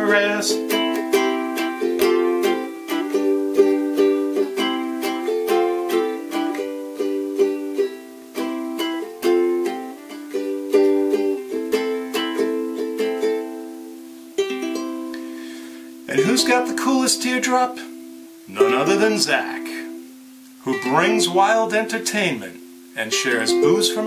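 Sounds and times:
ukulele strumming: 0.0s - 24.0s.

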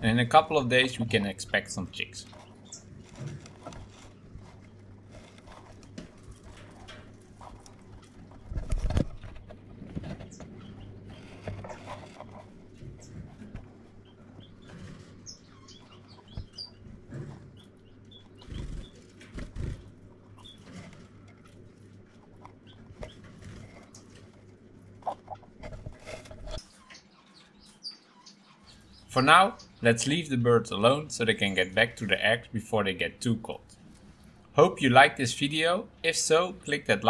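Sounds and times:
finches chirping: 0.9s - 3.2s, 14.0s - 16.9s, 20.3s - 20.7s, 26.6s - 32.2s
steady low hum: 28.7s - 37.0s.

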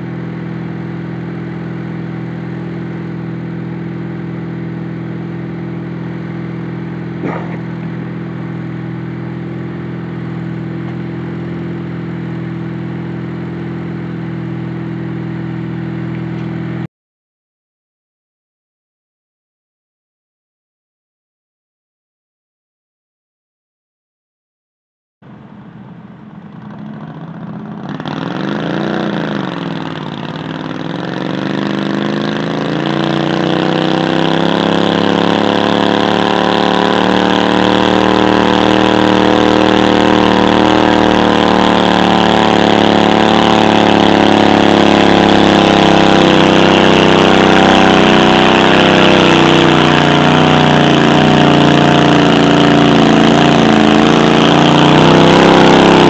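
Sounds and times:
garden tractor engine running: 0.0s - 16.9s, 32.9s - 56.0s.

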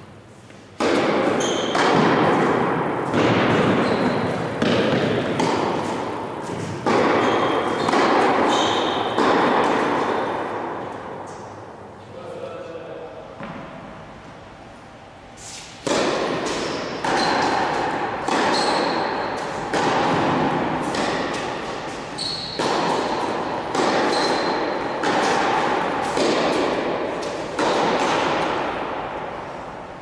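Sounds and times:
tennis ball hits echoing: 0.8s - 11.6s, 13.4s - 14.0s, 15.8s - 29.7s.

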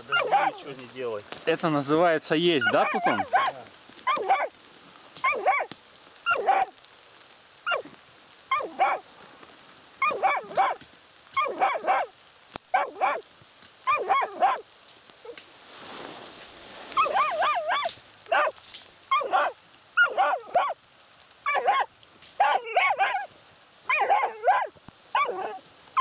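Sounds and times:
dogs barking: 0.0s - 0.8s, 2.6s - 4.5s, 5.2s - 5.7s, 6.3s - 6.8s, 7.6s - 7.9s, 8.5s - 9.0s, 10.0s - 10.8s, 11.4s - 13.2s, 13.8s - 14.7s, 17.0s - 20.8s, 21.4s - 23.3s, 23.9s - 25.6s
dogs yelping: 0.0s - 0.8s, 2.6s - 4.5s, 5.2s - 6.8s, 7.6s - 9.0s, 10.0s - 12.1s, 12.7s - 13.2s, 13.8s - 14.6s, 16.9s - 20.8s, 21.4s - 23.3s, 23.9s - 26.0s.

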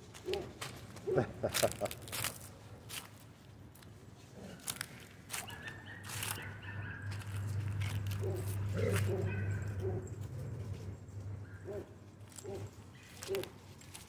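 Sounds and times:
dry leaves rustling and crunching: 0.0s - 14.0s
dogs growling: 6.5s - 13.5s.

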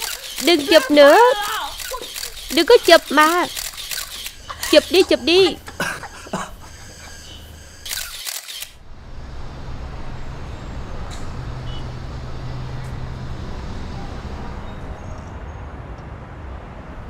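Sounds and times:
camera shutter clicks: 0.0s - 5.0s, 7.8s - 8.8s
city traffic hum: 0.0s - 17.0s.

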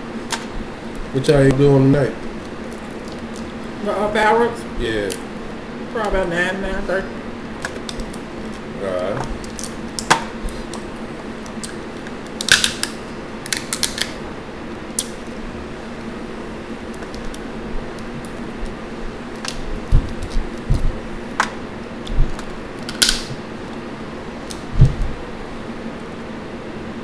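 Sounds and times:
box fan humming: 0.0s - 27.0s
shells cracking and snapping: 7.6s - 8.6s, 9.2s - 14.2s, 14.9s - 15.4s, 16.9s - 23.4s, 24.4s - 24.9s
dull knocks: 24.7s - 25.2s.

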